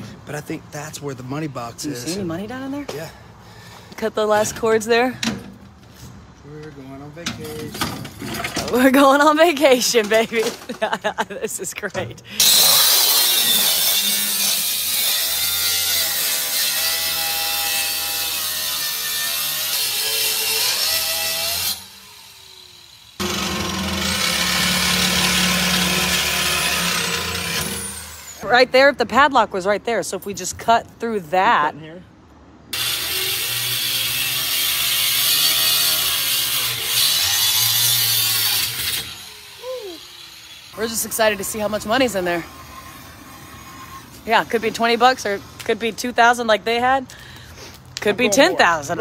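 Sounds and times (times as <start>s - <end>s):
angle grinder cutting metal: 12.3s - 28.5s, 32.7s - 45.7s.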